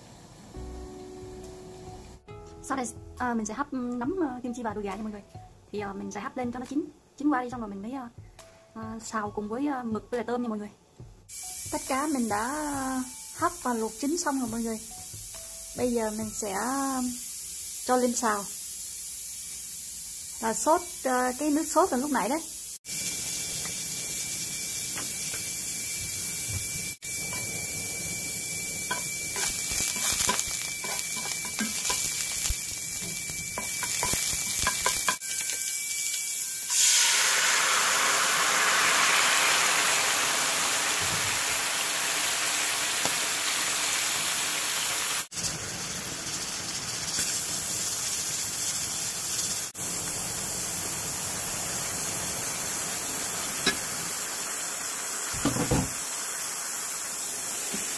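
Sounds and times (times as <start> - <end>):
steady hiss with high whistle: 11.3 - 41.9, 47.2 - 57.9
sauce sizzling in frying pan: 11.3 - 57.9.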